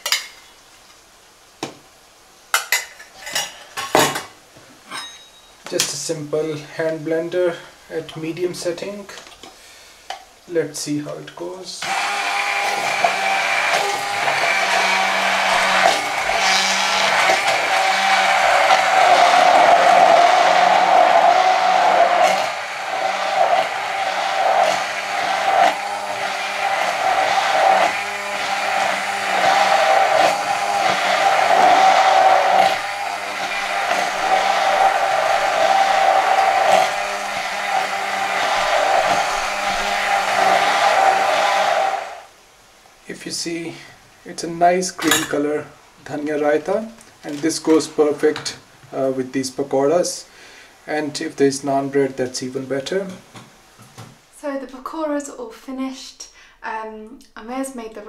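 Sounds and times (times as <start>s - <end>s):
hand blender motor whine: 11.8s - 42.3s
mixture churning: 11.8s - 42.3s.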